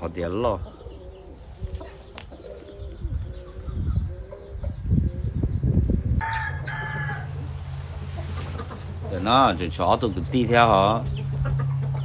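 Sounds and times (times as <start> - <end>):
bird cooing: 0.6 - 5.6.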